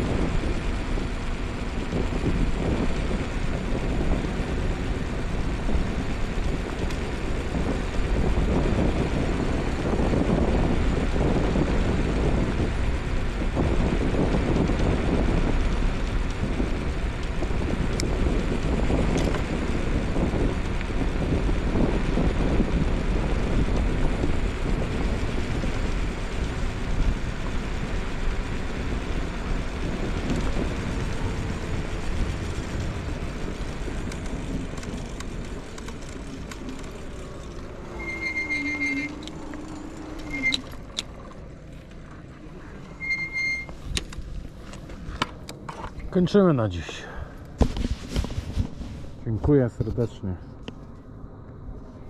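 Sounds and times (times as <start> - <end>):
wheels rumbling on pavement: 0.0 - 52.0
wind: 0.0 - 52.0
short high beeps: 40.3 - 40.6, 43.0 - 43.7.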